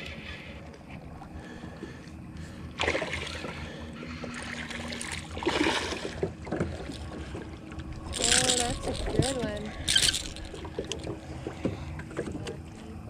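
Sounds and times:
fish splashing at water surface: 2.8s - 7.4s.

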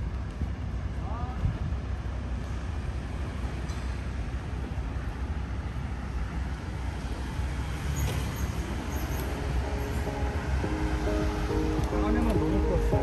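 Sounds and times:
low street rumble: 0.0s - 13.0s.

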